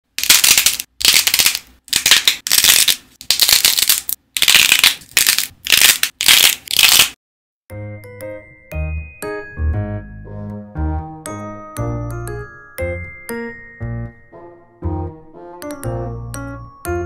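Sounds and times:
hardened clay cracking and crunching: 0.2s - 7.2s
piano and chime music: 7.7s - 17.0s.

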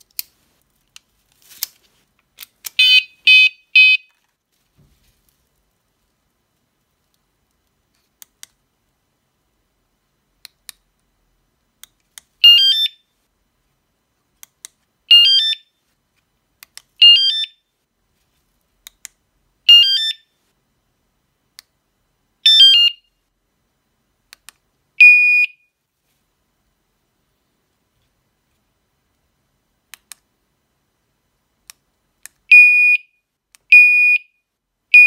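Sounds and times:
electronic alarm chirps: 2.8s - 4.1s, 12.4s - 13.0s, 15.1s - 15.7s, 17.0s - 17.6s, 19.7s - 20.3s, 22.5s - 23.1s.

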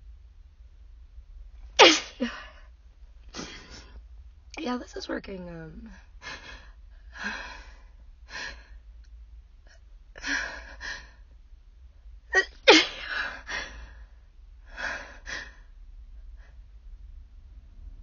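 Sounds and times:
woman sneezing: 1.8s - 2.5s, 12.4s - 13.1s.

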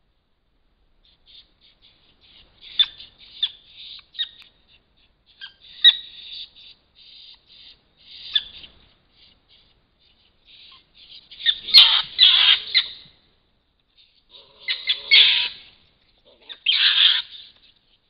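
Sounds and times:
animals making harsh calls: 1.0s - 13.1s, 14.0s - 17.8s
animal screeches: 9.6s - 13.0s, 14.0s - 17.6s.

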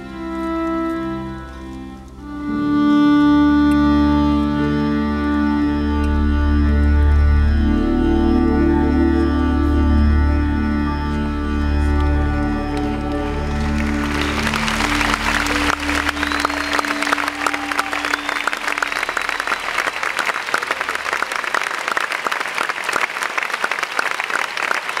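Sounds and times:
band holding last notes: 0.0s - 21.6s
audience applauding: 11.3s - 25.0s.

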